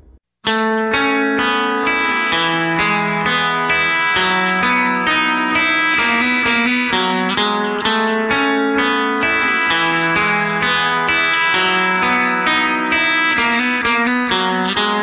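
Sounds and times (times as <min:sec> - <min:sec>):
guitar picking single notes: 0:00.0 - 0:15.0.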